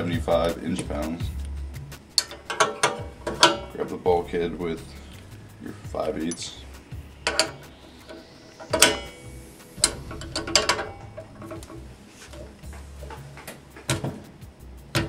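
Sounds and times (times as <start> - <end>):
metal wrenches clinking: 2.2 - 3.8, 9.8 - 13.5.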